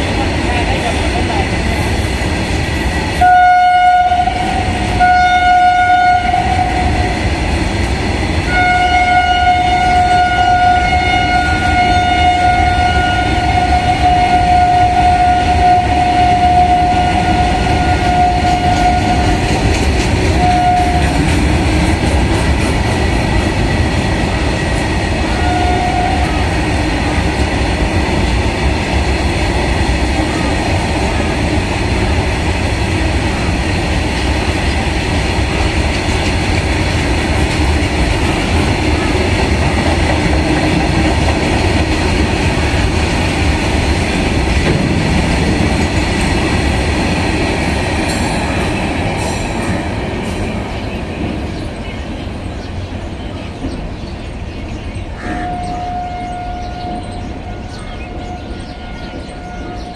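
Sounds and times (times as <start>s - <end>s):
locomotive horn blasts: 3.2s - 7.1s, 8.5s - 19.4s, 20.4s - 21.2s, 25.4s - 26.5s, 55.2s - 59.9s.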